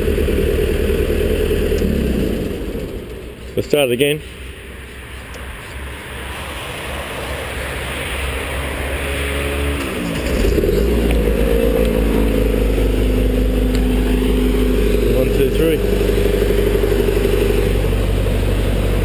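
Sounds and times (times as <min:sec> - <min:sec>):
stump grinder engine revving up: 0:00.0 - 0:03.2, 0:07.8 - 0:19.0.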